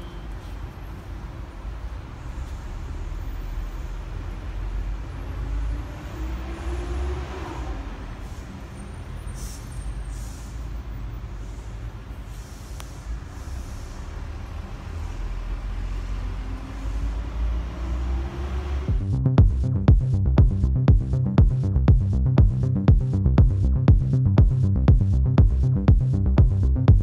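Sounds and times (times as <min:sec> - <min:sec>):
passing vehicles rumbling: 0:00.0 - 0:27.0
engine rising in pitch: 0:02.4 - 0:08.9, 0:13.1 - 0:27.0.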